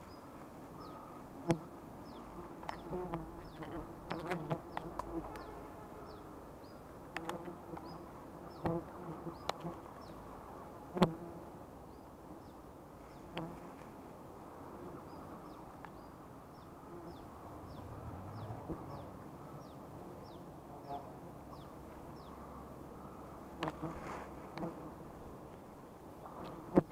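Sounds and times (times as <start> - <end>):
honeybees buzzing: 0.8 - 11.5, 14.7 - 25.4.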